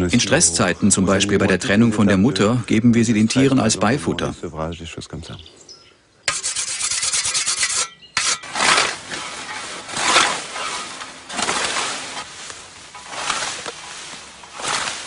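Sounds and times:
sharpening stone honing scythe: 6.3s - 10.7s
scythe swishing through nettles: 7.0s - 15.0s.

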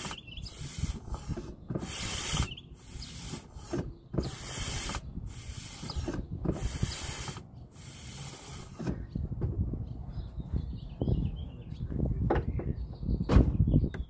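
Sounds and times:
brake fluid hissing through line: 0.0s - 9.0s
mechanical clicks and rubbing: 0.0s - 9.0s.

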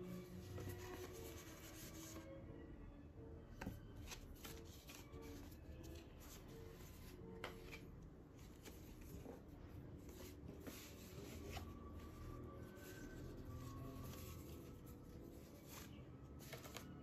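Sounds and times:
paper rustling: 4.0s - 9.4s, 10.0s - 17.0s.

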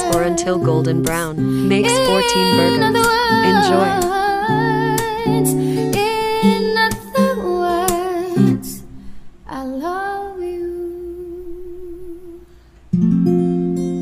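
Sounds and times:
acoustic guitar chord strummed: 0.0s - 14.0s
person singing a long note: 1.6s - 5.5s.

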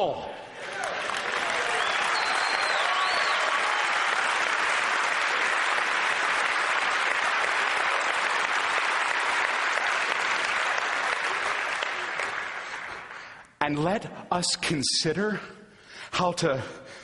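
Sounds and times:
audience applauding: 0.6s - 13.4s.

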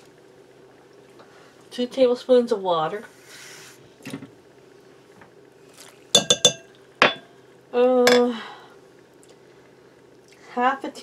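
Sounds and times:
metal spoons clinking: 6.2s - 7.2s.

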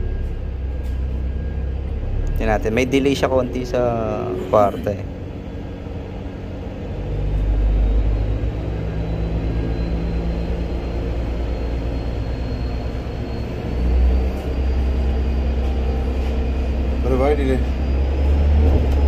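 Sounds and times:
diesel engine running: 0.0s - 19.0s
faint high whine rising: 0.0s - 19.0s.

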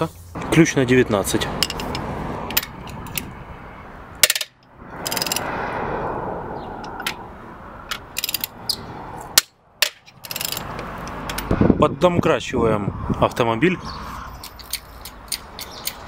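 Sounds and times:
wrench metallic clicks and clanks: 1.6s - 3.3s, 4.2s - 5.5s, 7.9s - 11.5s, 14.4s - 16.0s.

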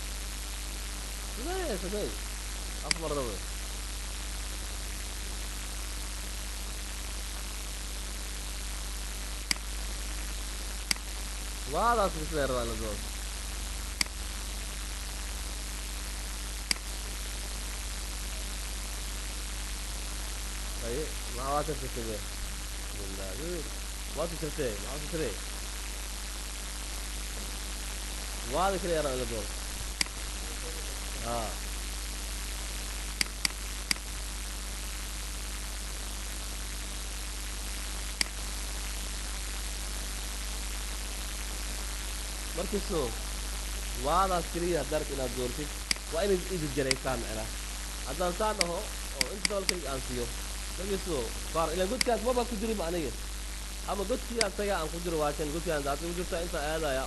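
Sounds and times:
low mains hum: 0.0s - 57.0s
recording hiss: 0.0s - 57.0s
sharp click: 2.9s - 3.1s, 9.5s - 9.7s, 10.9s - 11.1s, 16.7s - 16.9s, 33.2s - 34.1s, 45.9s - 46.1s
computer mouse clicks: 33.2s - 34.0s.

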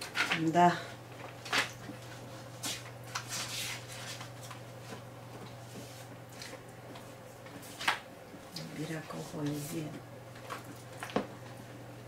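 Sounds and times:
steady low hum: 0.0s - 12.0s
paper pages rustling: 2.5s - 6.6s.

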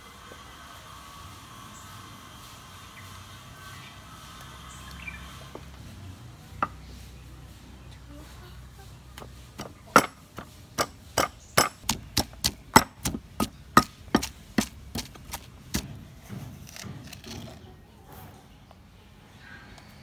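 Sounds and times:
pestle pounding in wooden mortar: 9.2s - 17.1s.

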